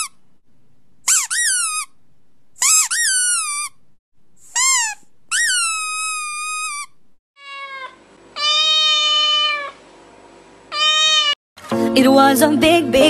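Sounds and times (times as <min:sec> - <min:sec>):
high-pitched squeaky calls: 0:01.1 - 0:01.9, 0:02.6 - 0:03.8, 0:04.5 - 0:09.7, 0:10.7 - 0:11.4.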